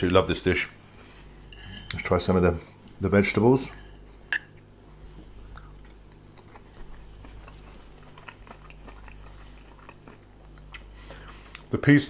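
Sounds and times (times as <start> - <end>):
low steady hum: 0.0 - 12.0
chewing vegetables: 5.1 - 11.7.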